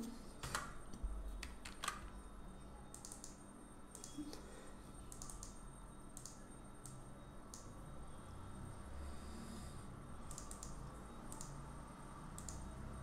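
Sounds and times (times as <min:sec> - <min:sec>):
mouse clicks: 0:05.1 - 0:05.6, 0:10.3 - 0:11.6, 0:12.4 - 0:12.7
keyboard keystrokes: 0:10.3 - 0:11.5.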